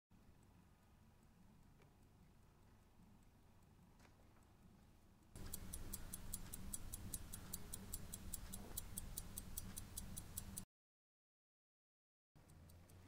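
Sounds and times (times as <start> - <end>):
pocket watch ticking: 5.2 - 10.6, 12.4 - 13.0.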